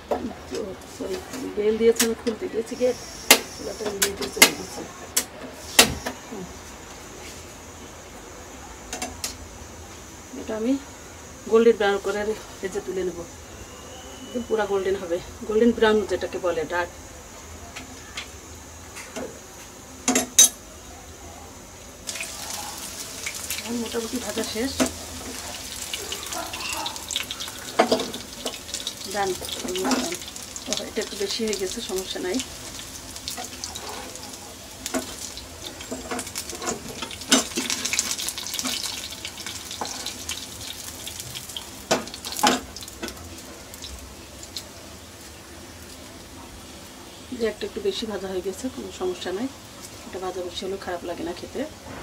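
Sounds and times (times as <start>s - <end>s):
chicken sizzling in oil: 22.0s - 51.8s.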